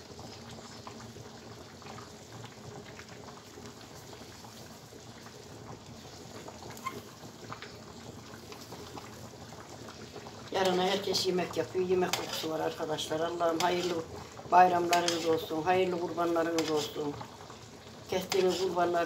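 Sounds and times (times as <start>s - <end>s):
syrup simmering and bubbling: 0.0s - 19.0s.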